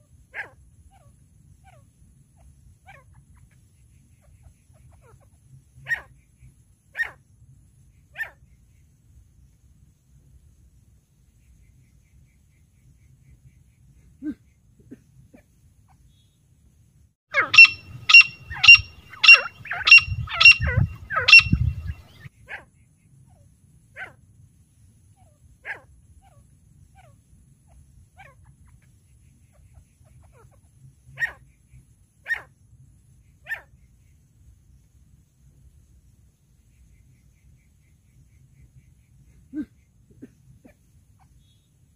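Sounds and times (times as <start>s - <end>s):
francolin calls: 17.3s - 22.3s.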